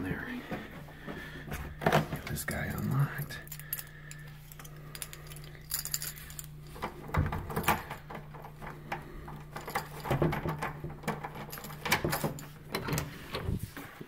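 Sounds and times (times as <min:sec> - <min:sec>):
keys jangling: 0:02.6 - 0:13.3.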